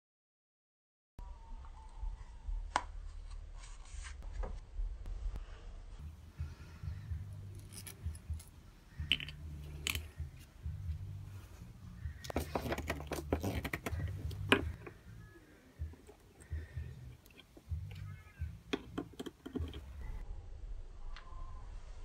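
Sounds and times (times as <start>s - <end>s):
low rumble: 1.2s - 12.3s, 19.8s - 22.0s
metal fittings clicking and clinking: 7.5s - 10.2s.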